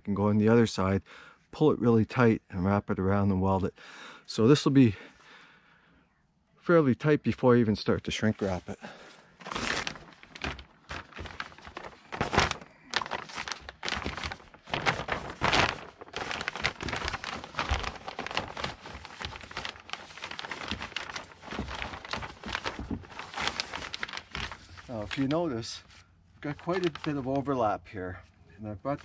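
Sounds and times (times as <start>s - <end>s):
plastic sheeting crinkling: 8.1s - 27.7s.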